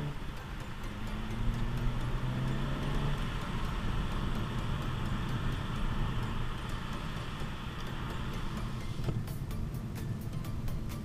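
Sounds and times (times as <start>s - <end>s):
tyre and road rumble: 0.0s - 10.2s
car engine: 0.0s - 11.0s.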